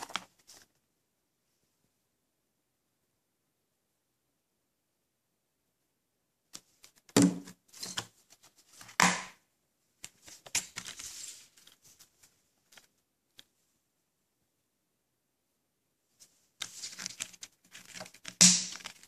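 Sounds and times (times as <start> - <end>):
scratchy rustling: 16.2 - 19.0.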